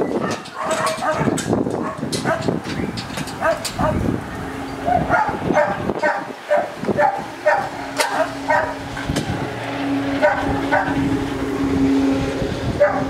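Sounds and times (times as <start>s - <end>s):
dogs barking: 0.0s - 2.6s, 3.3s - 9.1s, 10.1s - 11.1s, 12.8s - 13.0s.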